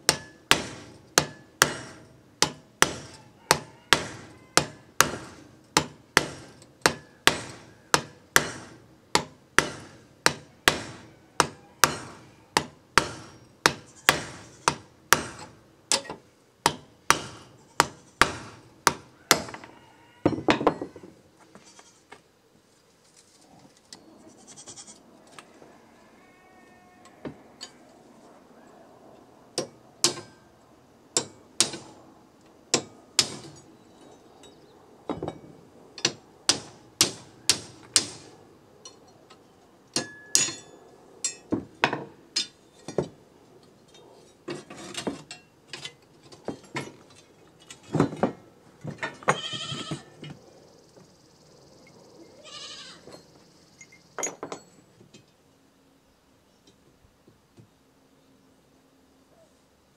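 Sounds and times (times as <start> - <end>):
hammer striking metal: 0.1 - 19.6, 29.6 - 30.4, 40.0 - 43.1.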